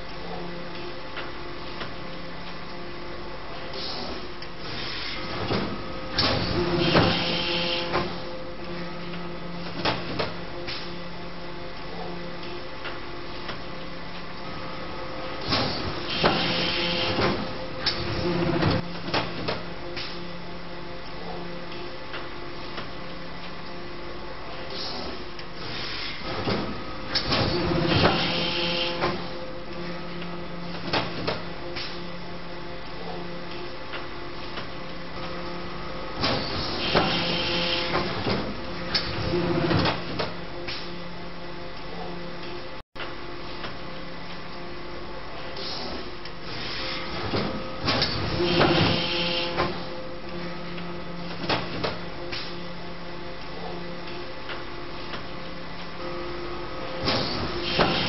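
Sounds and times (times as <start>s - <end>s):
steady machine hum: 0.0s - 58.0s.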